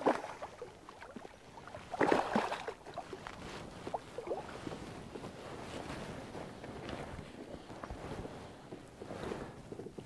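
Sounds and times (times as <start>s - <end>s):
light water splashing: 0.0s - 4.6s.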